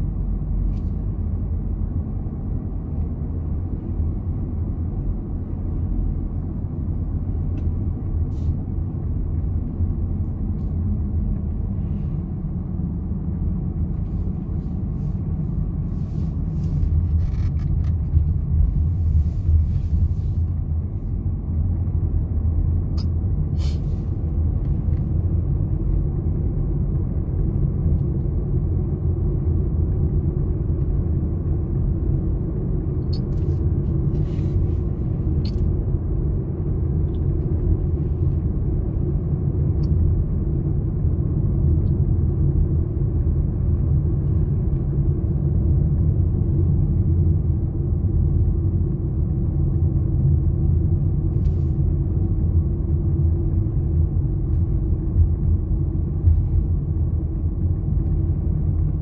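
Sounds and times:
car driving on paved road: 0.0 - 59.0.

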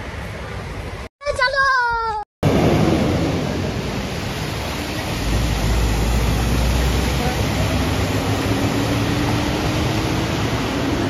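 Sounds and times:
water rushing from tyres: 2.5 - 11.0.

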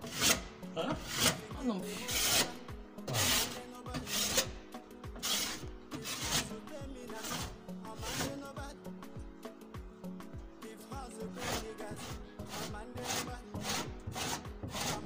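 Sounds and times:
plaster scraping strokes: 0.0 - 4.6, 5.2 - 8.6, 11.3 - 15.0
faint music: 0.0 - 15.0.

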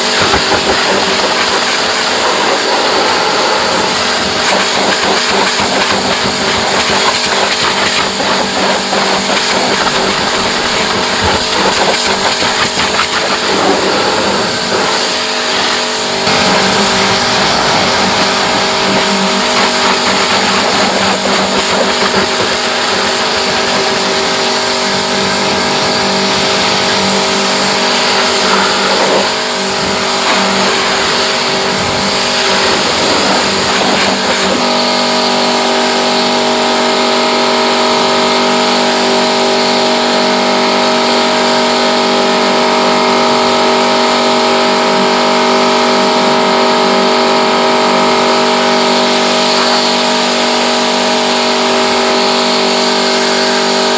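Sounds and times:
water spray hiss: 0.0 - 35.0
pressure washer motor hum: 0.0 - 53.9.

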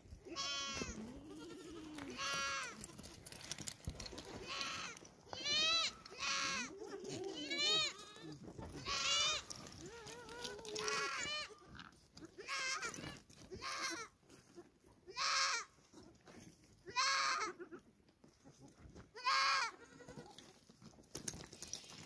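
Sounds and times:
goat bleating: 0.2 - 3.2, 4.1 - 16.2, 16.8 - 17.9, 19.1 - 20.6.

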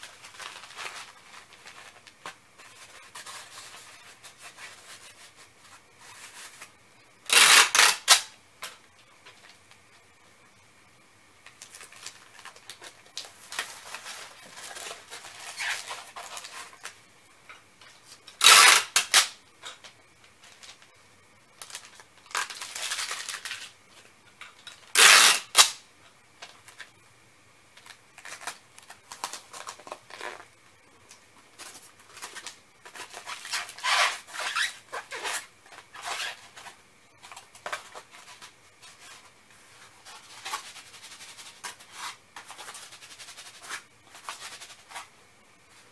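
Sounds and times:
packing materials rustling: 0.0 - 6.7, 11.4 - 17.0, 21.6 - 23.7, 27.8 - 30.5, 31.6 - 45.1
packing tape ripping off roll: 7.3 - 8.3, 11.6 - 16.9, 18.3 - 19.4, 21.6 - 23.7, 24.8 - 25.8, 31.6 - 36.7.

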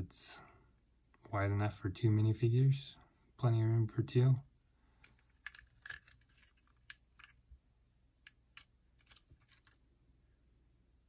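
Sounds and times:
plastic toy pieces clicking: 5.4 - 7.4, 8.3 - 9.8.

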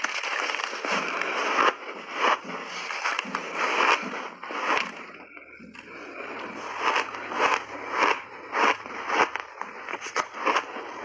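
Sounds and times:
chewing crunchy ice: 0.0 - 11.0.

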